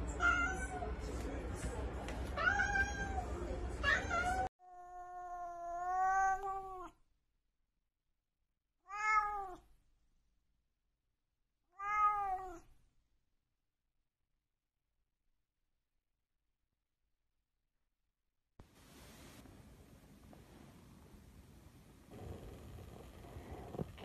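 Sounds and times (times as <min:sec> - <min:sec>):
cat meowing: 0:02.4 - 0:03.2, 0:03.8 - 0:07.0, 0:08.8 - 0:09.6, 0:11.7 - 0:12.6.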